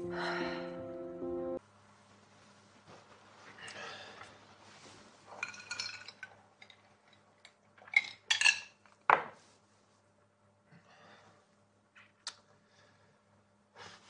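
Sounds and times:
soft rustling: 0:01.9 - 0:05.5.

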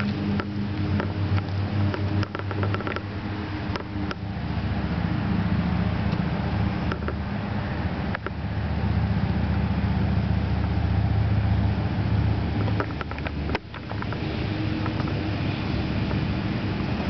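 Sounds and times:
light clicks and taps: 0:00.0 - 0:04.2.

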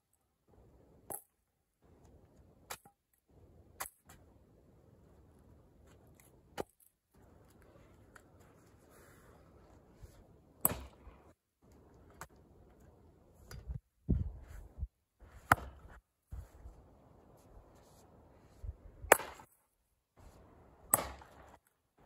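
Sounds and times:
axe splitting firewood: 0:10.6 - 0:11.2, 0:15.3 - 0:16.0.

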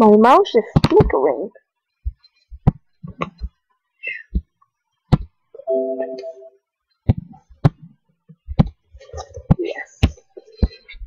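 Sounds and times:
computer alert chime: 0:05.7 - 0:06.6.

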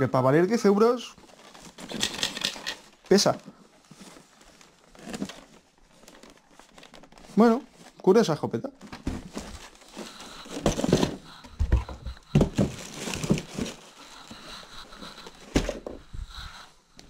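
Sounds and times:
cardboard and foam rustling: 0:00.6 - 0:17.0
box thumping down: 0:08.9 - 0:09.7, 0:10.4 - 0:13.8, 0:15.5 - 0:16.0.

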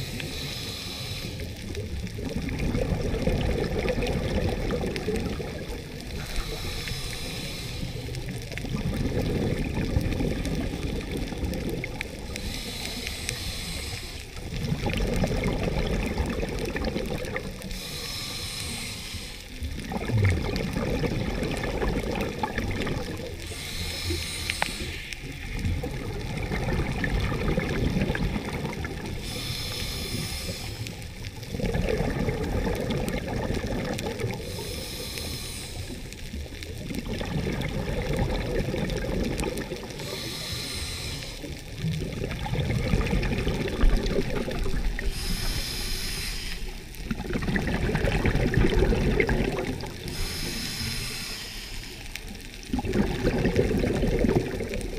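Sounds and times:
regulator hiss on inhale: 0:00.0 - 0:02.2, 0:05.9 - 0:08.6, 0:12.0 - 0:14.6, 0:17.4 - 0:19.8, 0:21.8 - 0:25.7, 0:28.1 - 0:31.5, 0:33.4 - 0:36.5, 0:39.5 - 0:41.9, 0:44.7 - 0:47.2, 0:49.8 - 0:52.7
exhaled bubbles rumbling: 0:00.0 - 0:54.9.

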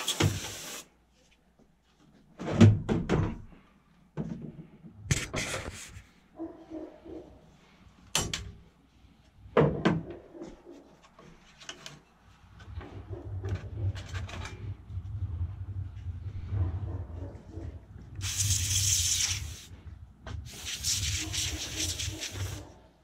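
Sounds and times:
spray can hiss: 0:00.0 - 0:00.9, 0:18.2 - 0:19.7, 0:20.4 - 0:22.7.

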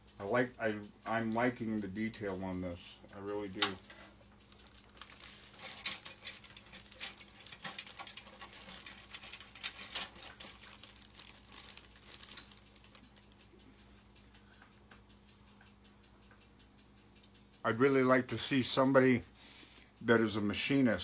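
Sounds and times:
plastic bags crinkling: 0:03.6 - 0:13.3.

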